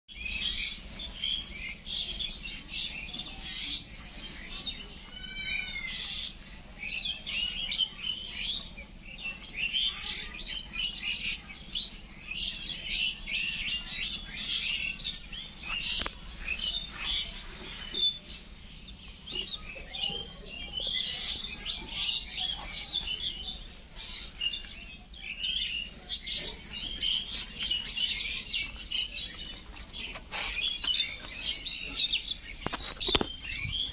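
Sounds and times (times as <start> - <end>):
small birds chirping: 0.1 - 33.9.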